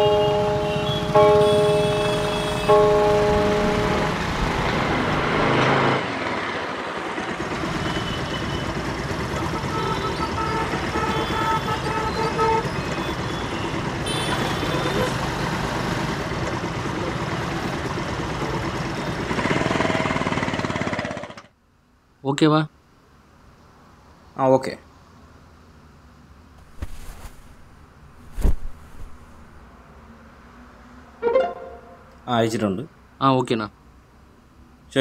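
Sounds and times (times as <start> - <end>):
vehicle horns tooting: 0.0 - 4.2, 7.8 - 8.8, 9.4 - 15.2, 31.2 - 32.2
vehicles passing: 0.0 - 21.0, 25.0 - 33.2.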